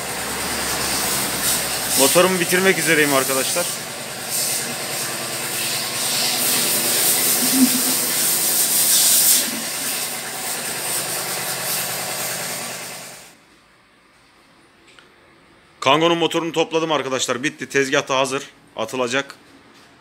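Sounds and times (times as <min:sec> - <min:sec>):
low motor hum: 0:00.0 - 0:13.2
machine hissing: 0:00.0 - 0:13.4.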